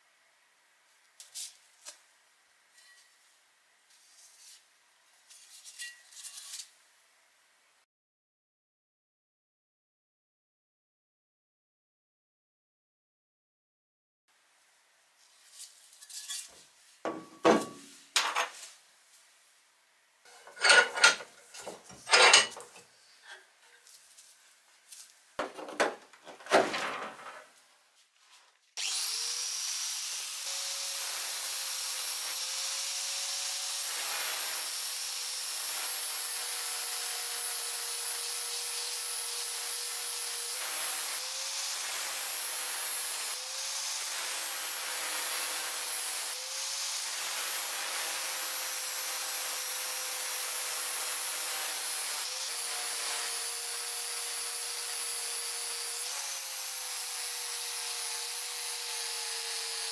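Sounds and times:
angle grinder grinding metal: 0:20.3 - 0:23.5, 0:28.8 - 0:59.9.

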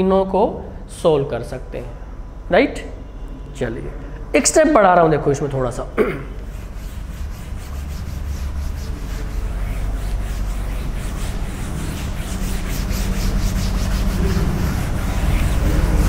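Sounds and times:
low hum: 0:06.4 - 0:16.0
writing scratching on board: 0:06.4 - 0:16.0.

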